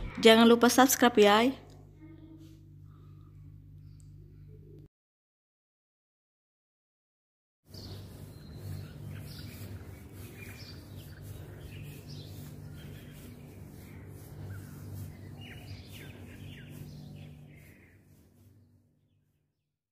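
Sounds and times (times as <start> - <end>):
steady low hum: 0.0 - 4.9, 7.7 - 19.4
birds chirping: 7.7 - 19.2.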